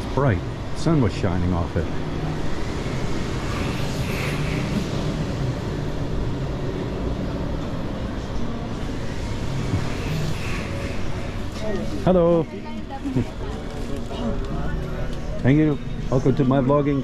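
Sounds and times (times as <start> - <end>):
indoor arcade rumble: 0.0 - 17.0.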